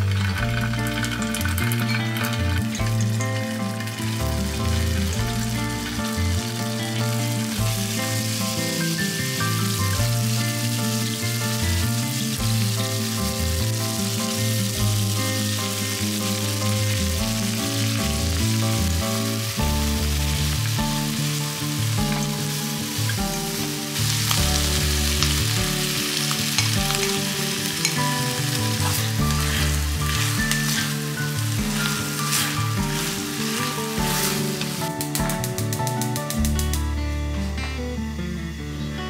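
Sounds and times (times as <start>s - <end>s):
food sizzling in frying pan: 0.0s - 36.9s
sharp clicks: 34.9s - 36.9s.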